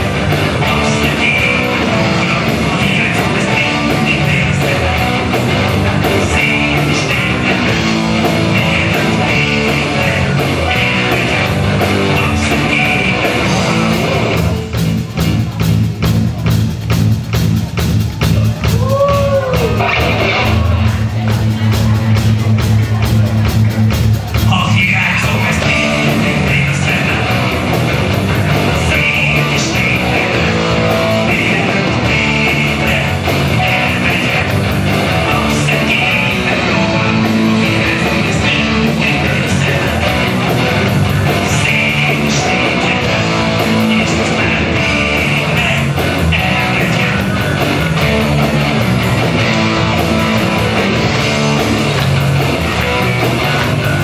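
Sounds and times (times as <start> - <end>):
live rock band playing: 0.0 - 54.0.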